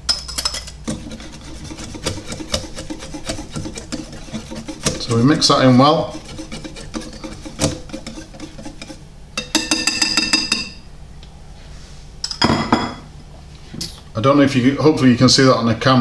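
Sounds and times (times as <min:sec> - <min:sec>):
whisk clinking in ceramic bowl: 0:00.0 - 0:10.8.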